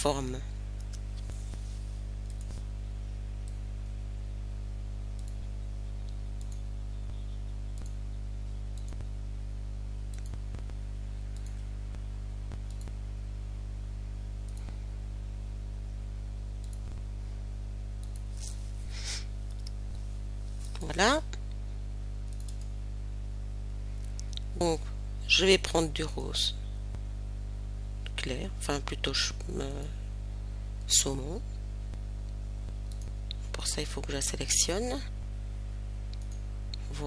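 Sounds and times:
steady low hum: 0.0 - 37.0
computer mouse clicking: 0.8 - 1.6, 2.2 - 2.6, 5.2 - 6.7, 7.8 - 8.0, 8.8 - 9.2, 10.1 - 11.7, 12.5 - 13.0, 14.4 - 14.8, 16.6 - 17.0, 18.0 - 18.6, 22.3 - 22.7, 32.8 - 33.4, 36.1 - 36.8.

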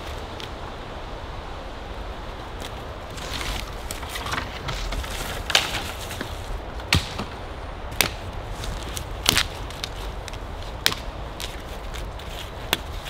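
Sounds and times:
wind rumble on microphone: 0.0 - 13.0
dry branches snapping: 2.6 - 13.0.

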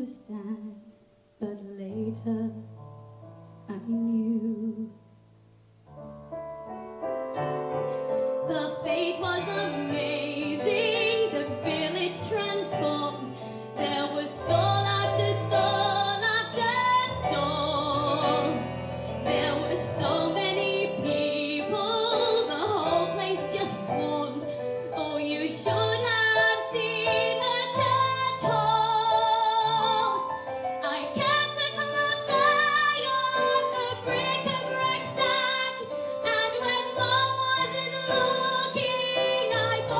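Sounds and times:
piano accompaniment: 2.0 - 39.9
woman singing with vibrato: 8.4 - 39.9.

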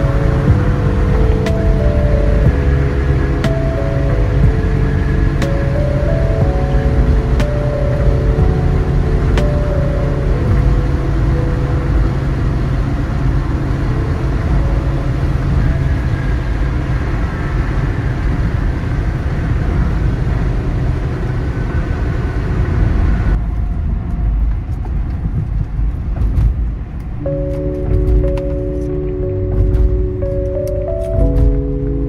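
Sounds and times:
road hiss: 0.0 - 23.4
car road noise rumble: 0.0 - 32.0.

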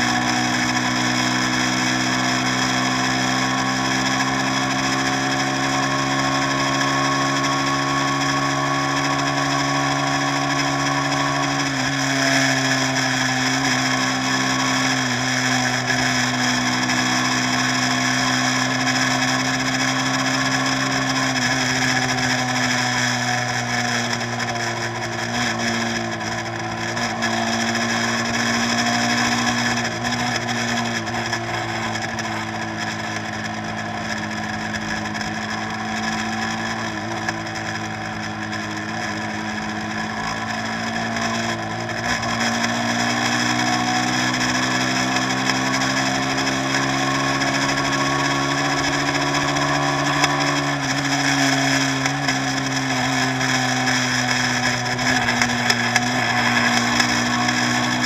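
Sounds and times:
boat engine droning: 51.9 - 58.0.

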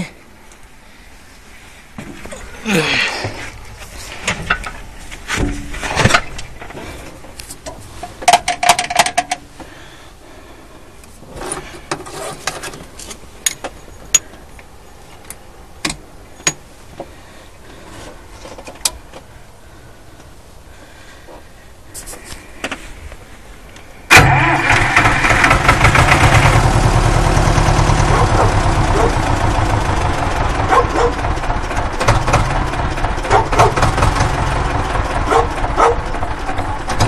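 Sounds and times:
tractor controls clicking and rattling: 6.0 - 9.5, 18.4 - 19.3, 23.8 - 26.3, 30.7 - 37.0.

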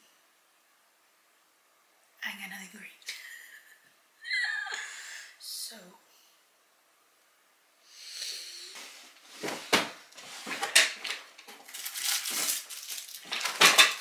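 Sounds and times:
rustling and handling noise: 8.7 - 14.0.

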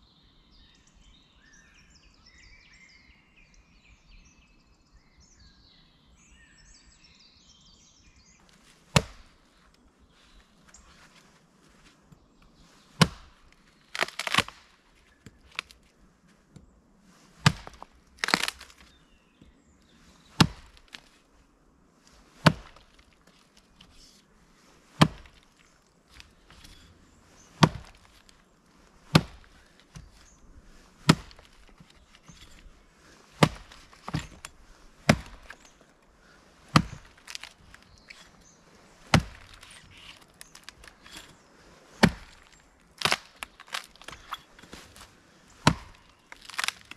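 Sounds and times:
wood cracking and splintering: 8.5 - 9.7, 12.8 - 16.0, 17.3 - 19.0, 20.2 - 21.3, 22.1 - 24.2, 24.8 - 46.9
axe striking wood: 8.8 - 9.4, 12.9 - 15.8, 17.4 - 18.9, 20.3 - 21.1, 22.4 - 23.1, 24.9 - 35.9, 36.6 - 46.9.

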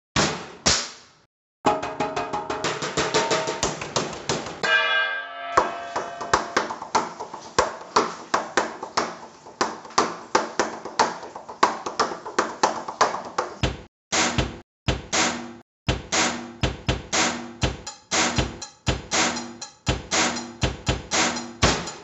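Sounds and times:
hands drumming on steel shelving: 1.7 - 4.9, 5.6 - 22.0
short metallic ringing tone: 4.6 - 6.6.

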